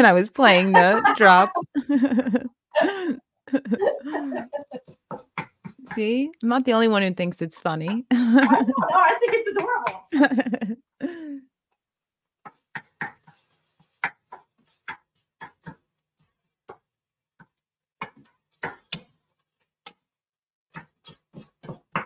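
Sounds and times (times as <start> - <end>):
wooden spoon scraping a pan: 20.7 - 22.0.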